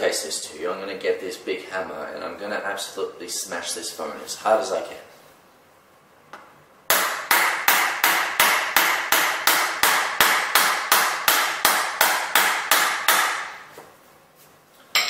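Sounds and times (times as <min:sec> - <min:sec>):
hammer striking phone screen: 0:06.9 - 0:13.5.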